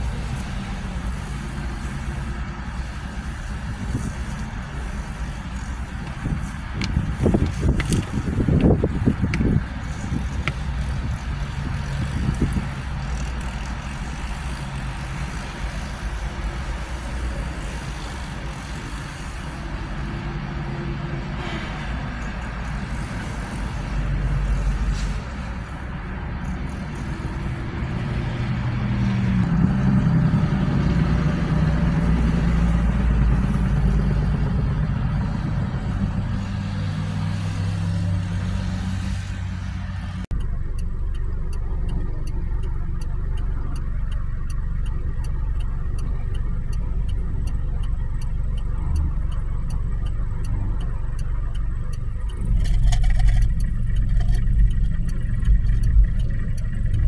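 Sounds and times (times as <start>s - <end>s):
low engine rumble: 0.0s - 57.0s
traffic engines and tyre noise: 0.0s - 57.0s
faint rapid ticking: 40.3s - 57.0s.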